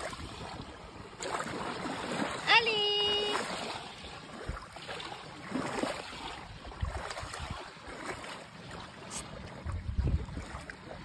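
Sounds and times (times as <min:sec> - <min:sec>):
sea water washing at shoreline: 0:00.0 - 0:11.0
wind knocking on microphone: 0:09.6 - 0:10.6.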